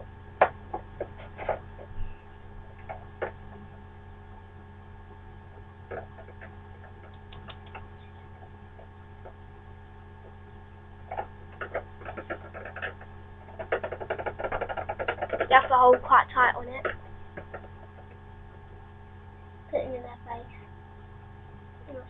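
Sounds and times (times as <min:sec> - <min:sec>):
electrical hum: 0:00.0 - 0:22.0
pencil clicking on cage bars: 0:11.1 - 0:15.6.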